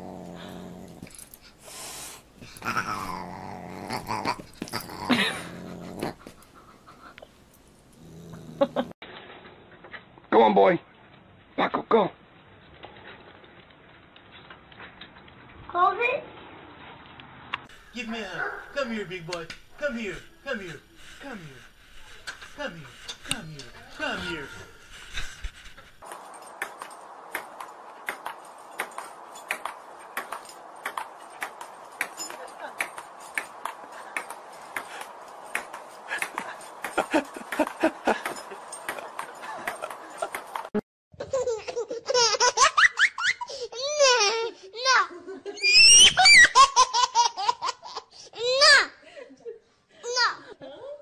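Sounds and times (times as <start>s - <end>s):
animals growling: 0.0s - 1.5s, 2.4s - 6.9s, 7.8s - 9.0s.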